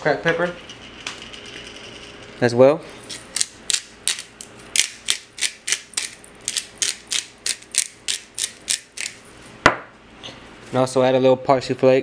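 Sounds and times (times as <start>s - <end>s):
pepper grinder crunching: 3.1s - 9.2s.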